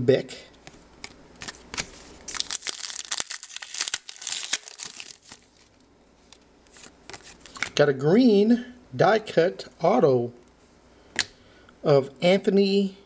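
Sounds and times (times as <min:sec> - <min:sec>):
plastic wrapper crinkling and tearing: 0:01.4 - 0:07.7.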